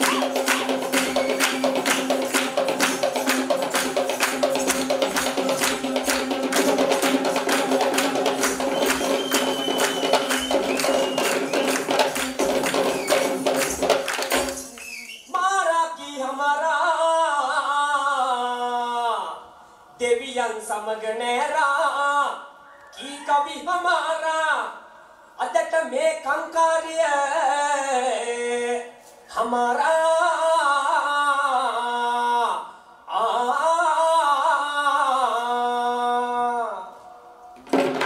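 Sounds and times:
fast hand drumming: 0.0 - 14.7, 37.6 - 38.0.

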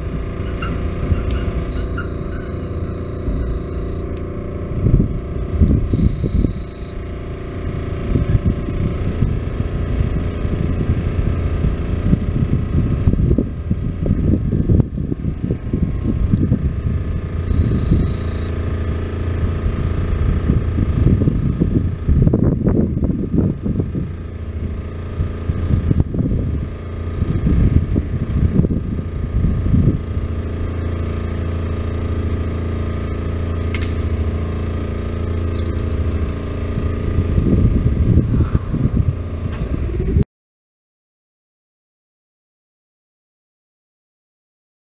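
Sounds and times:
engine idling: 0.0 - 40.2
wind buffeting microphone: 4.6 - 40.2
steam train rumble: 33.5 - 40.2
small click: 33.6 - 34.1.

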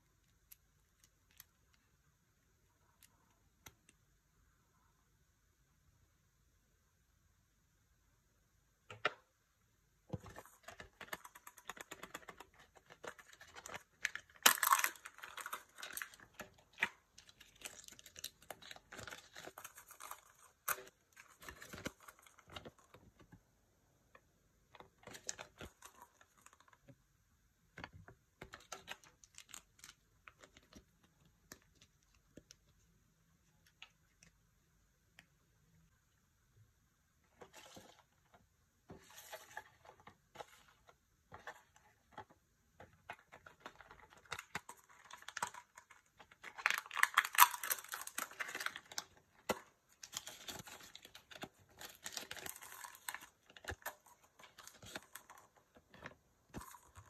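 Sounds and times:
plastic wrapper crinkling and tearing: 10.3 - 23.1, 28.4 - 32.6, 42.8 - 57.0.

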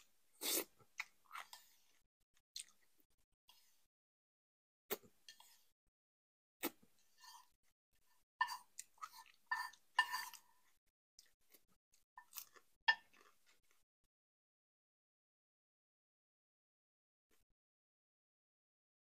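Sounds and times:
person chewing food: 0.4 - 2.0, 2.6 - 3.0, 8.1 - 13.8.

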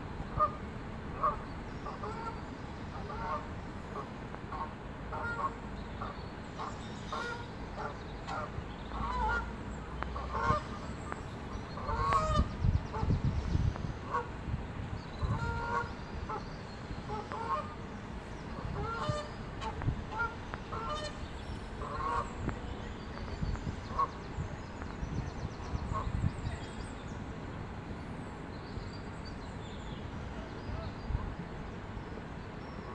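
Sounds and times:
geese honking: 4.6 - 9.6, 10.2 - 10.8, 11.8 - 13.0, 15.2 - 16.4, 17.1 - 17.8, 18.6 - 22.4.

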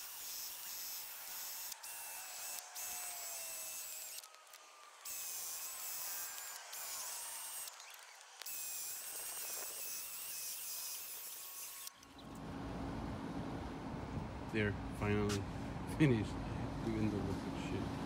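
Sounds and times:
drill boring into concrete: 0.0 - 12.0
low steady rumble: 12.2 - 18.0.

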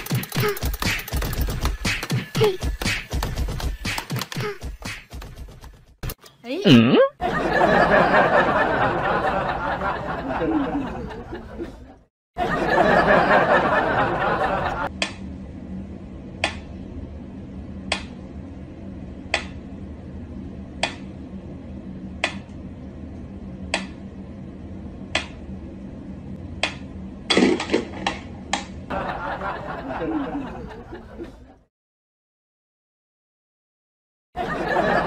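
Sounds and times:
low steady hum: 6.3 - 31.7.

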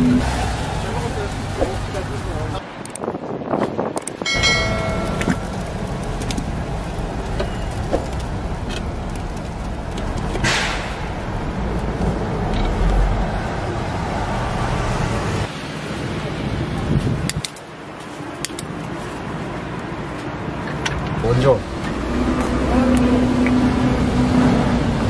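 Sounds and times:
street traffic rumble: 0.0 - 25.0.

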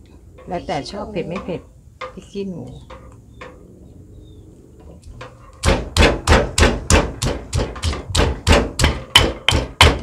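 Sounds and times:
stone pestle pounding in mortar: 5.5 - 10.0.

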